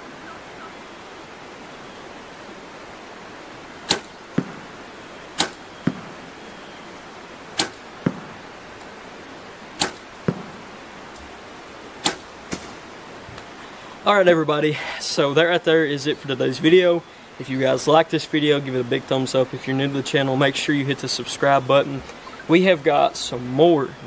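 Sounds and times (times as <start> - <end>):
arrow thudding into target: 3.8 - 4.6, 5.4 - 6.2, 7.6 - 8.4, 9.8 - 10.6, 12.0 - 12.8
bow string snap: 3.9 - 4.2, 5.4 - 5.6, 7.6 - 7.8, 9.8 - 10.1, 12.0 - 12.7.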